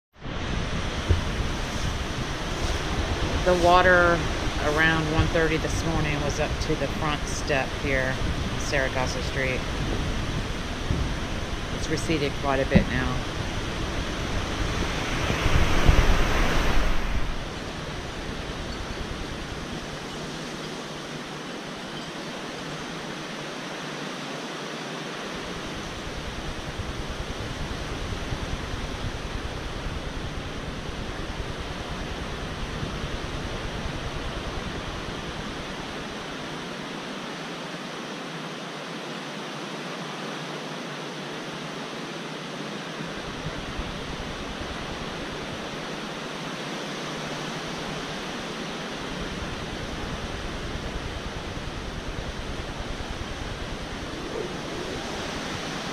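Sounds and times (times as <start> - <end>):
wind rushing: 0.2 - 7.2, 7.8 - 20.1, 49.0 - 55.9
wind buffeting microphone: 0.2 - 23.4, 25.4 - 36.6, 47.5 - 55.9.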